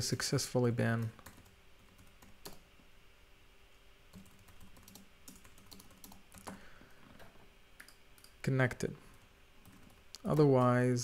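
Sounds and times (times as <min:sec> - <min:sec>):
keyboard typing: 0:01.0 - 0:02.6, 0:04.1 - 0:08.4, 0:09.6 - 0:10.8.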